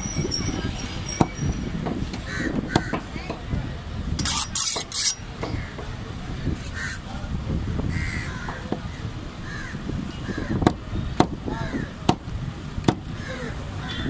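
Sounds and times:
murmur of voices: 0:00.0 - 0:14.0
cawing calls: 0:02.3 - 0:03.0, 0:07.9 - 0:10.7
cleaver chopping on wooden block: 0:02.7 - 0:03.5, 0:04.7 - 0:06.0, 0:12.8 - 0:13.1.

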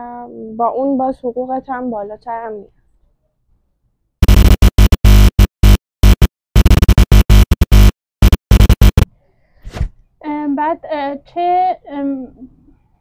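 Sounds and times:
stuttering electronic music: 0:04.2 - 0:09.1.

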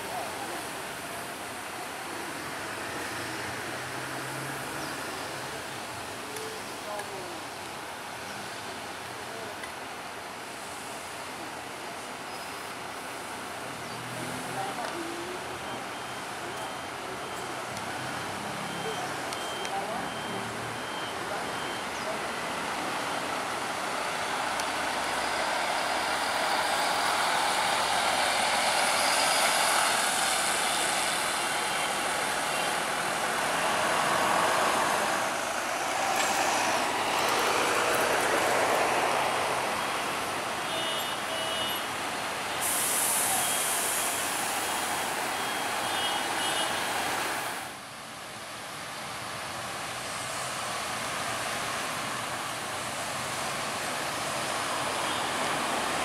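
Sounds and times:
bus diesel engine driving past: 0:13.0 - 0:40.7, 0:48.7 - 0:56.0
short high beeps: 0:15.6 - 0:17.6, 0:18.6 - 0:21.9.

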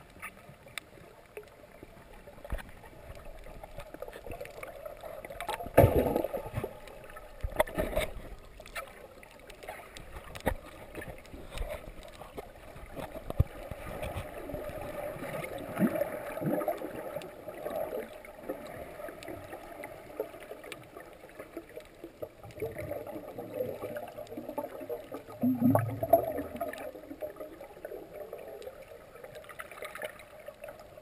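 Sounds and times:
muffled underwater water noise: 0:00.0 - 0:31.0
small clicks and knocks: 0:06.4 - 0:14.7.

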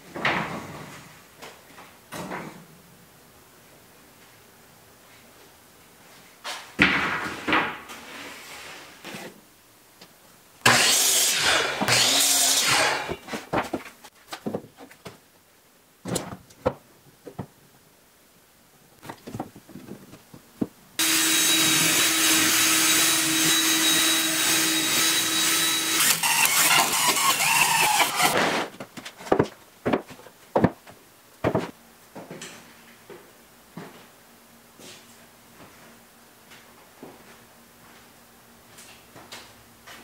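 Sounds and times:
cordless drill running: 0:21.0 - 0:28.4
wooden boards and clamps clattering: 0:25.9 - 0:31.8.

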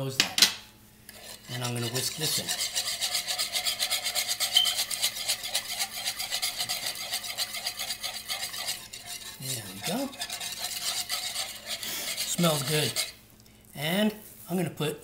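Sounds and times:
wire whisk beating in bowl: 0:01.2 - 0:13.2.

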